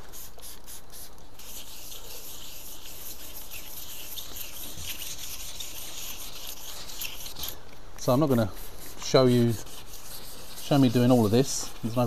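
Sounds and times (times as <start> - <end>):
spray bottle squirts: 0.0 - 7.6
wet sandpaper rubbing on paint: 0.0 - 12.0.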